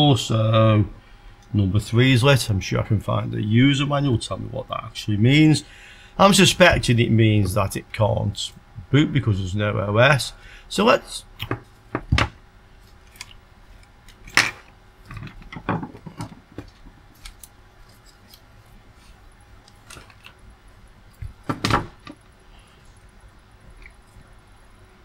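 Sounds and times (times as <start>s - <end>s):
knocks on workbench: 21.5s - 22.0s.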